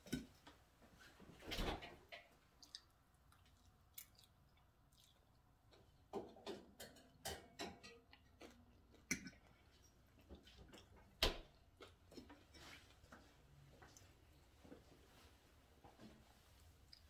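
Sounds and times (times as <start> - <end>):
soft chewing: 2.2 - 6.4, 7.8 - 17.0.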